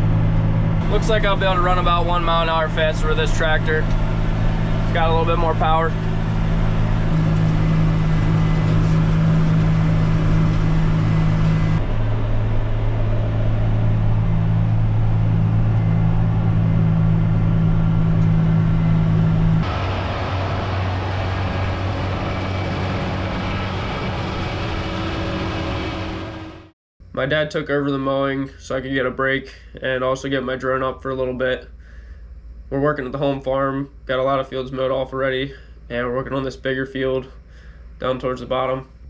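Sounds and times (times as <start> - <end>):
tractor and mower running: 0.0 - 26.7.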